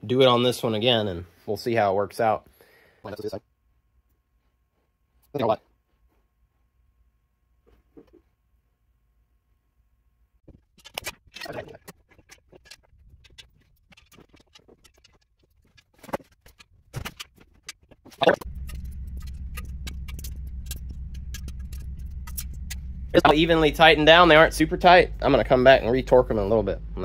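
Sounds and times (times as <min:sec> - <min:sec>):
steady low hum: 0:16.5 - 0:27.0.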